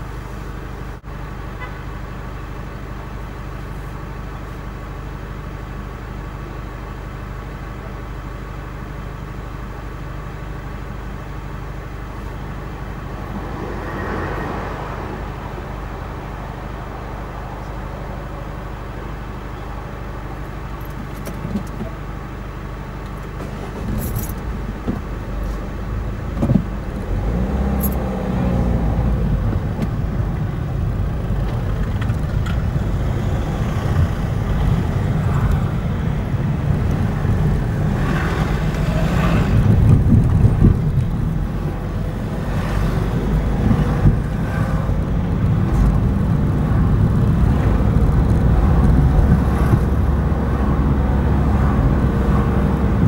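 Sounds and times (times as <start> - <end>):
car engine: 0.0 - 53.0
road noise: 0.0 - 53.0.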